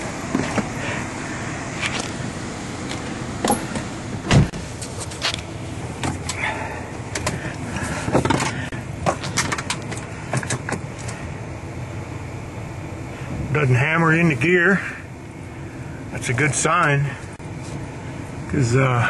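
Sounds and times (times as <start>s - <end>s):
car engine idling: 0.0s - 19.0s
clicks and knocks inside car: 7.1s - 11.1s.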